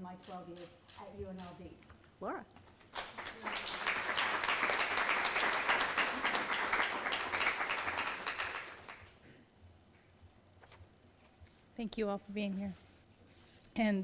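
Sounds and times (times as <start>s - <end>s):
audience applauding: 2.9s - 9.2s.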